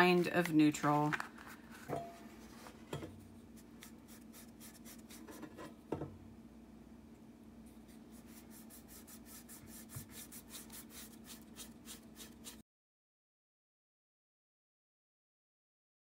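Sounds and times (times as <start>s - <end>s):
paintbrush scratching on wood: 3.6s - 5.6s, 7.7s - 12.6s.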